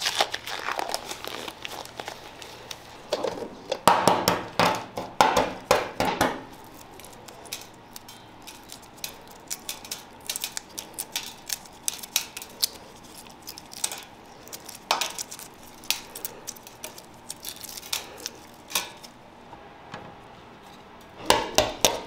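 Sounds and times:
egg shell crackling: 0:00.0 - 0:03.2, 0:06.5 - 0:19.2.

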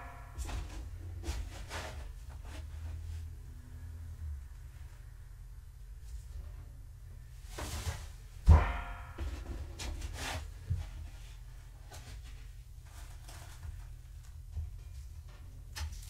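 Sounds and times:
rustling scrapes: 0:00.4 - 0:03.6, 0:06.0 - 0:08.4, 0:09.2 - 0:14.2
loud ringing knock: 0:08.4 - 0:10.0.

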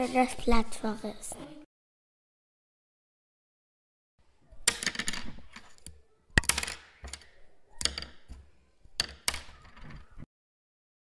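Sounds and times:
pens clattering on hard surface: 0:04.7 - 0:10.1.

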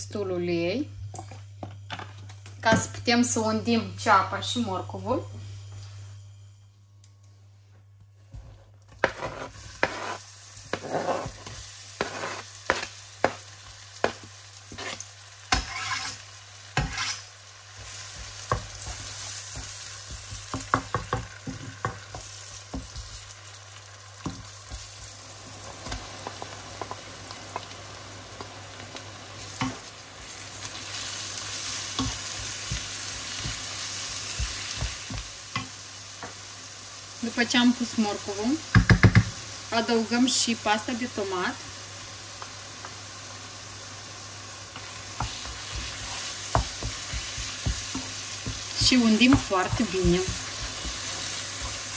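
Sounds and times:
vegetables sizzling in oil: 0:08.9 - 0:51.9
spatula knocking against pan: 0:38.7 - 0:39.3.

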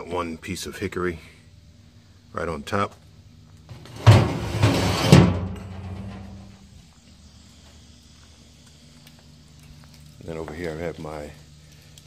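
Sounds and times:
faint steady hiss: 0:00.0 - 0:12.0
clattering with heavy thumps: 0:03.7 - 0:06.5.

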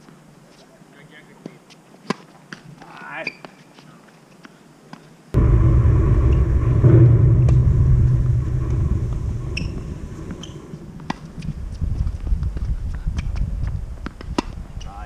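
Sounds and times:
loud low rumble: 0:05.4 - 0:12.0.

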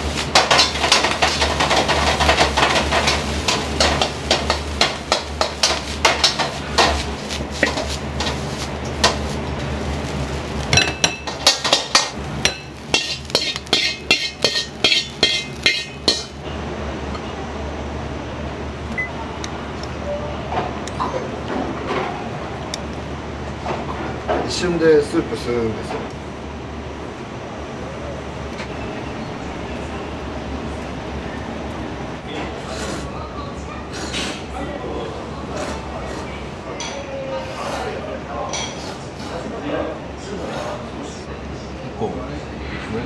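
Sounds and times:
metal utensils and pots clinking: 0:00.2 - 0:09.3, 0:10.7 - 0:16.4.

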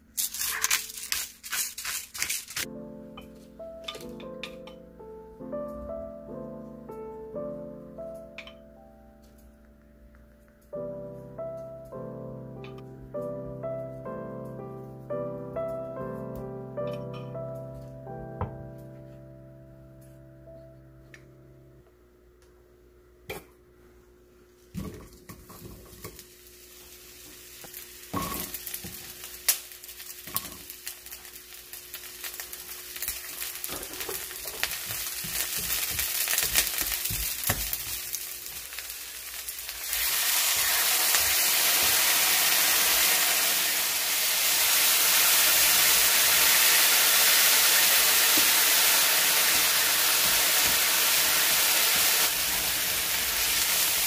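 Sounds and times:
food sizzling in frying pan: 0:00.0 - 0:02.7, 0:24.8 - 0:54.0.

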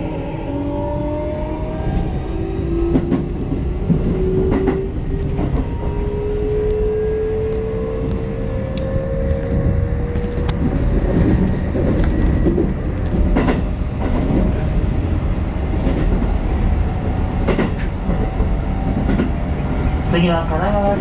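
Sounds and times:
wheel-on-rail rumble: 0:01.3 - 0:21.0
clacks over rail joints: 0:09.3 - 0:14.6, 0:17.4 - 0:19.4.

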